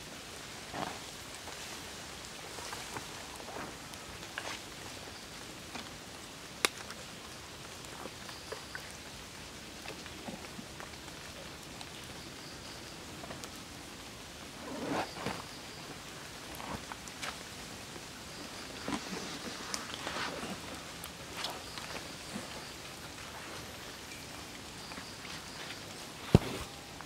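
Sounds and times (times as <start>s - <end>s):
soft crackles from foliage: 0.0s - 27.0s
steady forest hiss: 0.0s - 27.0s.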